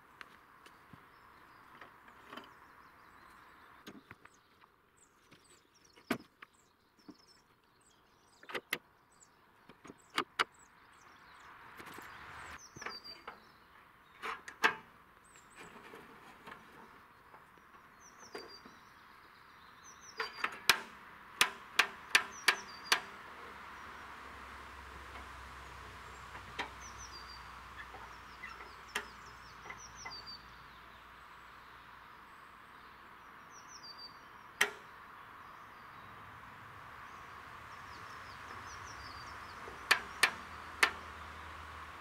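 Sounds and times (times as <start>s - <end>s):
small birds chirping: 0.0s - 42.0s
knocks of timber and metal: 20.2s - 23.3s.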